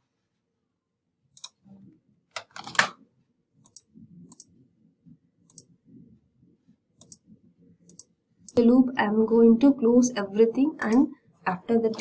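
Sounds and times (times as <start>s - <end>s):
computer mouse clicks: 1.3s - 1.6s, 3.6s - 4.6s, 5.4s - 5.8s, 7.0s - 8.6s.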